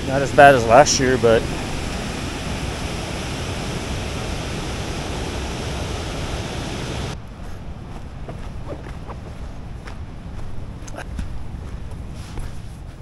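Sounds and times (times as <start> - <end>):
rushing water: 0.0 - 7.2.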